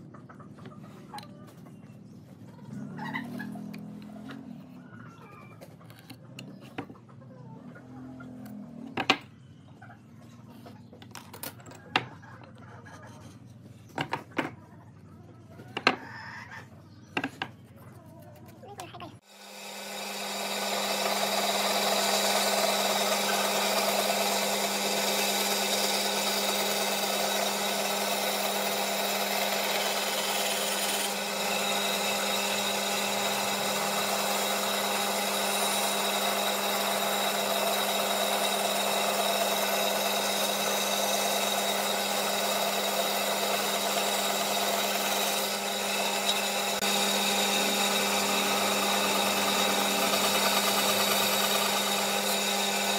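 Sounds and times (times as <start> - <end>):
band saw cutting wood: 19.2 - 52.9.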